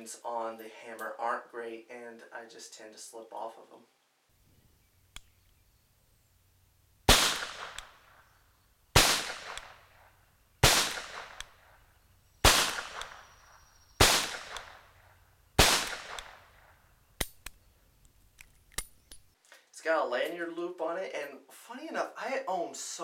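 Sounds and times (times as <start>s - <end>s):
revolver shots echoing: 7.1s - 8.3s, 8.9s - 16.8s
small clicks: 17.2s - 19.4s.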